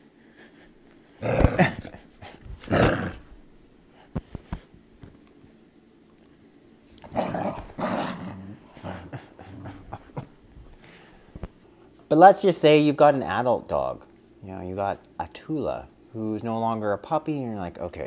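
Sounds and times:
dog growling: 1.2 - 3.3, 7.0 - 10.3.

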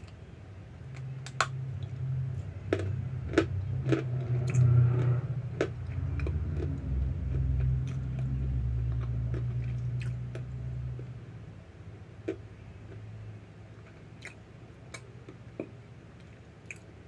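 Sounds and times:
steady low hum: 0.0 - 17.0
chewing hard crunchy chunks: 2.6 - 10.5.

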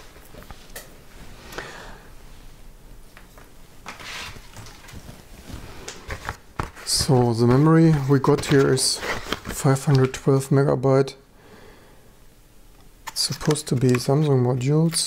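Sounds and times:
paper mailer rustling: 3.9 - 10.6, 13.1 - 15.0
handling clicks and rustles: 12.8 - 15.0.

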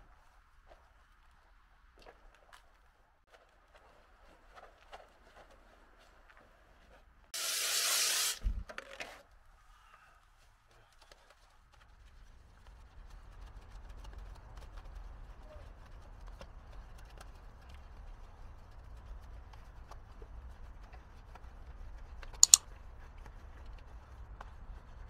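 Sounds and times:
sponge scrubbing wet wheel: 7.4 - 8.4
sharp clicks: 22.3 - 22.6.

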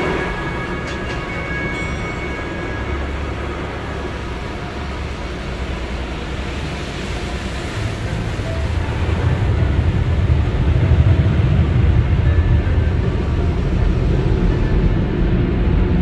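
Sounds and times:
water spraying over car: 4.0 - 14.2
low rumble: 5.0 - 16.0.

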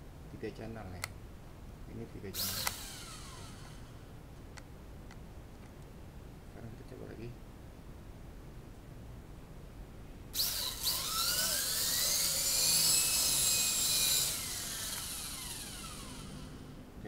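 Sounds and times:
rc helicopter motor whine: 2.4 - 3.9, 10.4 - 16.8.

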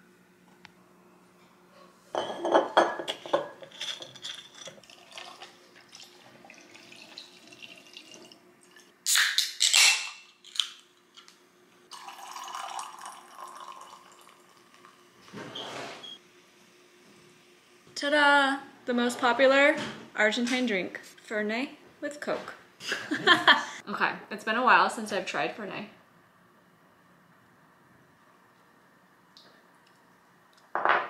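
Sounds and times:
can cracked open with hiss: 9.1 - 10.7
liquid poured over ice: 11.9 - 14.6
soda fizzing over ice: 11.9 - 14.8.

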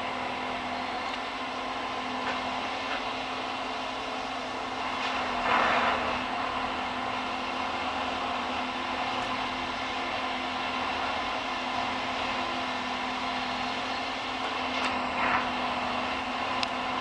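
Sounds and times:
diesel engine droning: 0.0 - 17.0.

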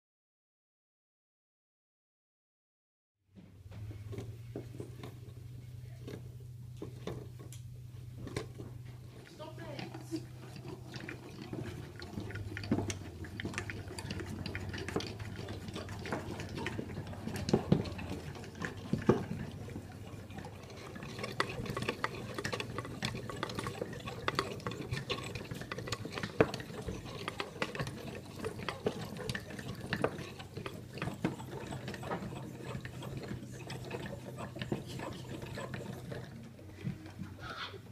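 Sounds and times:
steady low hum: 3.4 - 37.9
wooden cams clicking and knocking: 8.2 - 37.5.

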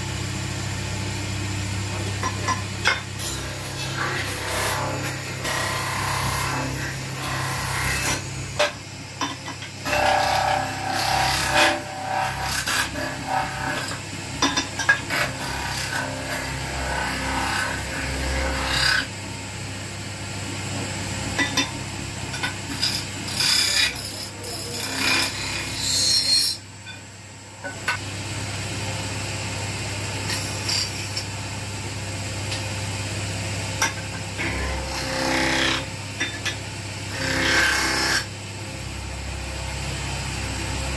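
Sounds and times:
lathe humming: 1.9 - 9.1, 9.8 - 14.0, 22.7 - 26.6, 34.4 - 35.8, 37.1 - 40.9
tool scraping metal: 2.0 - 19.1, 22.3 - 27.0, 30.3 - 31.3, 33.8 - 38.9.

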